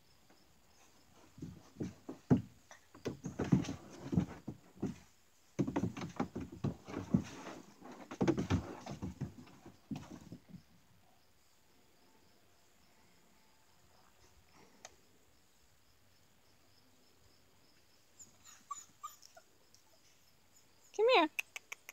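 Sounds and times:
puppy scrabbling at plastic stool: 1.2 - 10.6.

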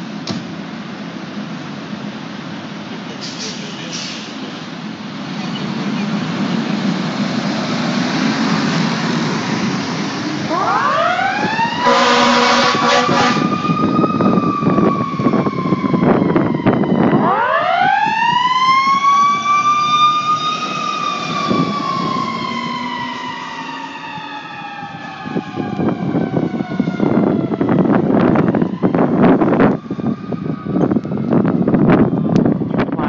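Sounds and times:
fire engine siren wailing: 0.9 - 33.0
short horn blast: 11.8 - 13.5.

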